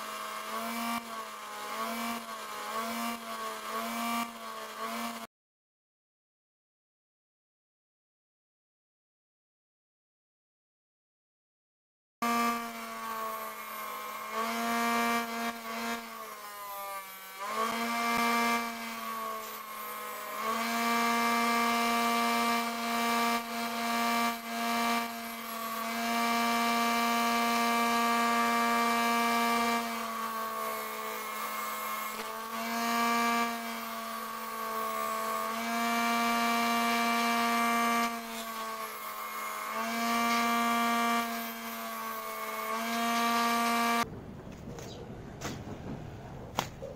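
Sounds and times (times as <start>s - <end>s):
bench grinder motor whining: 0.0s - 5.3s, 12.2s - 44.1s
steel grinding on stone wheel: 12.2s - 44.1s.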